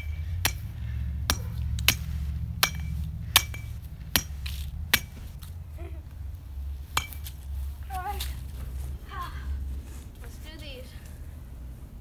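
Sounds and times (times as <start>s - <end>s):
metal bat pinging: 0.0s - 5.2s, 6.9s - 7.4s
steady low rumble: 0.0s - 12.0s.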